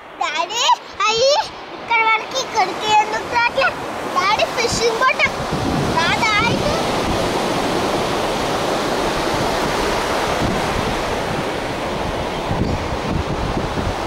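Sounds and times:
sea surf breaking on beach: 0.0s - 14.0s
wind buffeting microphone: 0.0s - 14.0s.

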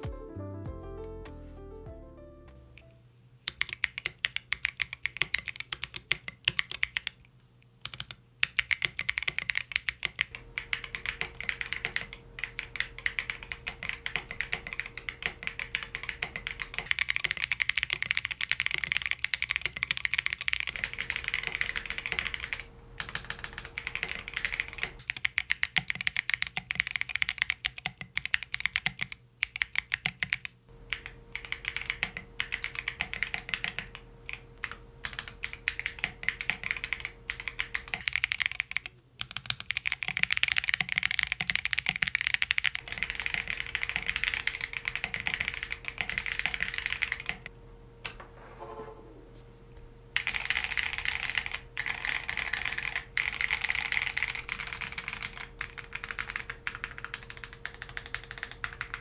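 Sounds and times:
mechanical keyboard keystroke clacks: 3.5s - 7.1s, 7.8s - 47.5s, 50.2s - 59.0s.

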